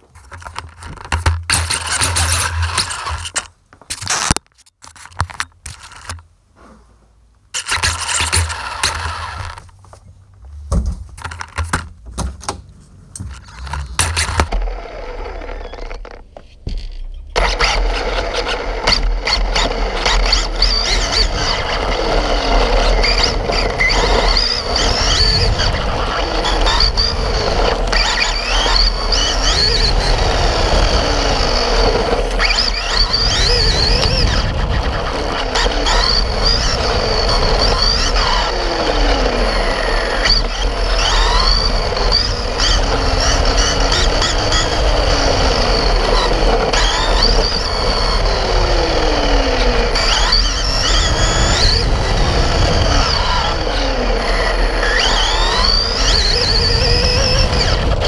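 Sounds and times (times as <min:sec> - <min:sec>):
toy car motor whine: 0:00.0 - 0:04.4, 0:07.6 - 0:09.7, 0:13.3 - 0:58.0
tyres rumbling on brick paving: 0:06.6 - 0:58.0.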